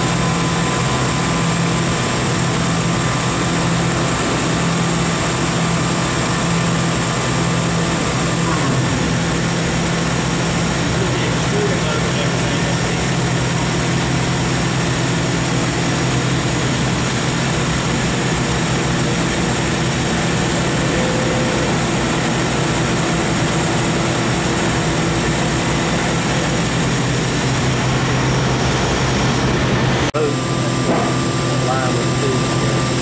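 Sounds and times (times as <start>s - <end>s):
industrial machinery drone: 0.0s - 33.0s.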